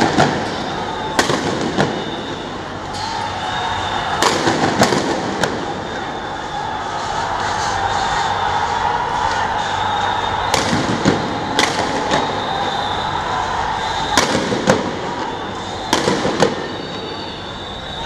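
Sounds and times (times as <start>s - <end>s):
high drawn-out whine: 0.0s - 18.0s
gunshots: 4.2s - 5.7s, 14.1s - 15.0s, 15.9s - 16.7s.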